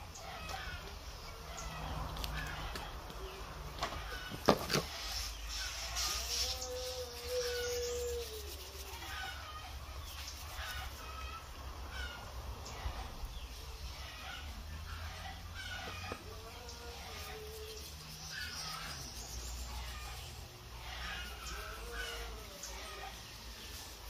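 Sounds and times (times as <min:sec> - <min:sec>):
birds chirping: 0:00.0 - 0:24.0
rooster crowing: 0:06.0 - 0:09.8, 0:14.1 - 0:17.8.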